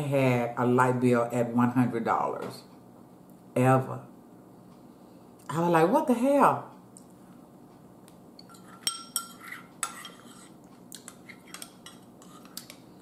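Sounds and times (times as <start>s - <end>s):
metal spoon clinking against bowl: 8.4s - 12.8s.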